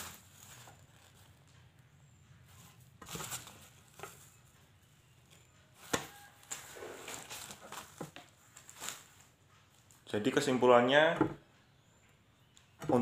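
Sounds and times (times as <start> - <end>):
fabric bag rustling: 6.1 - 9.4.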